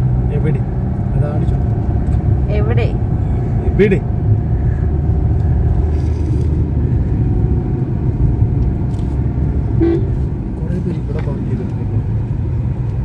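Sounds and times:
car engine and tyres rumbling: 0:00.0 - 0:13.0.

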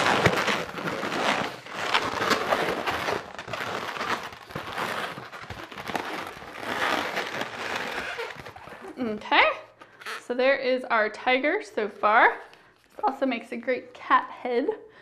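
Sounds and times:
balloons squeaking and rubbing: 0:00.0 - 0:10.4.

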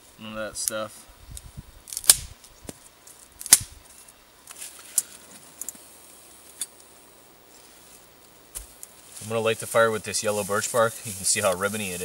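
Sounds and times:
dry twigs snapping: 0:01.9 - 0:03.8.

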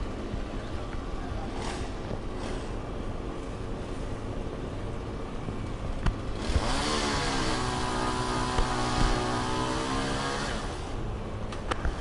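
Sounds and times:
chainsaw engine revving: 0:06.3 - 0:11.0.

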